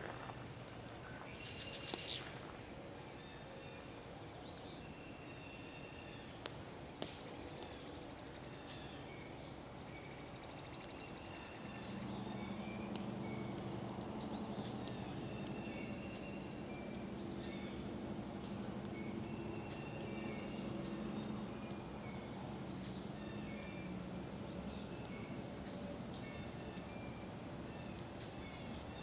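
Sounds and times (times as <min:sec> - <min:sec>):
small birds chirping: 0:00.8 - 0:29.0
sharp pops: 0:06.4 - 0:07.3.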